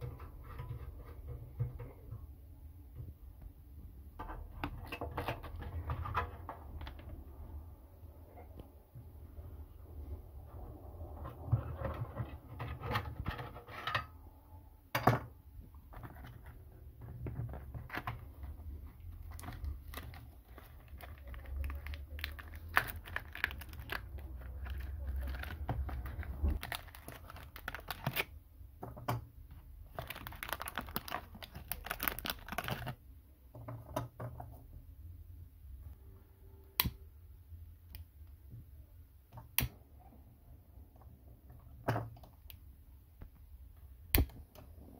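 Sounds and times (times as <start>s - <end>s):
paper packaging rustling and tearing: 19.2s - 28.3s, 29.9s - 33.0s.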